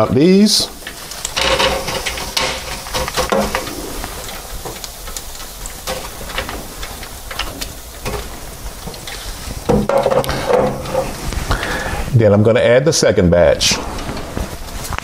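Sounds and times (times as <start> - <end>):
fried shrimp clattering from basket: 0.7 - 11.3.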